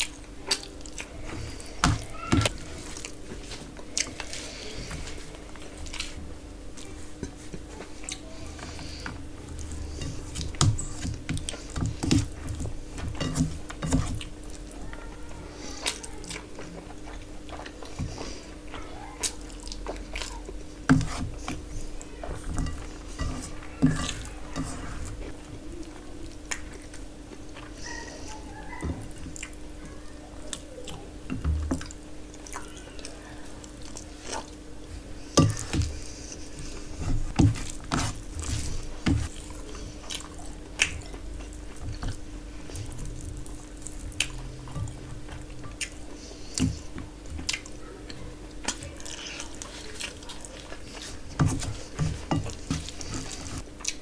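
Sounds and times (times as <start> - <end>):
faint steady hum: 0.0 - 54.0
wet squishes of food mixing: 0.0 - 54.0
chewing and mouth smacking: 15.8 - 20.7, 25.9 - 28.0, 29.1 - 29.6, 31.8 - 34.6, 38.6 - 54.0.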